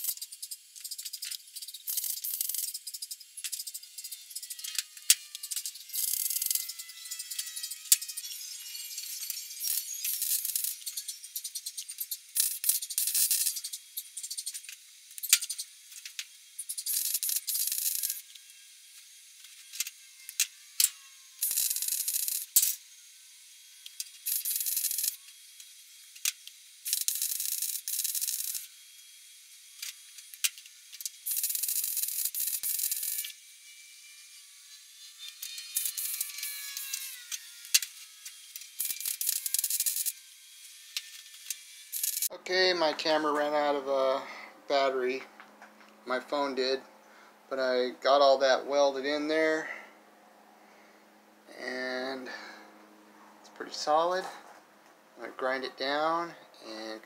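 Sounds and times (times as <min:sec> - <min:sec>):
welder arc crackling: 0:00.0 - 0:22.8, 0:23.8 - 0:25.3.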